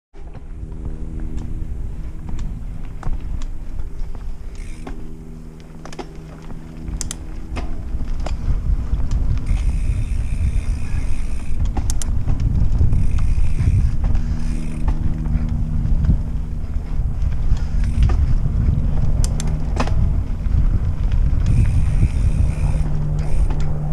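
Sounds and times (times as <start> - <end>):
bike clicks and rattles: 0.2 - 23.9
heavy tyre rumble: 0.2 - 23.9
steady hum: 0.2 - 23.9
wind on microphone: 6.5 - 23.9.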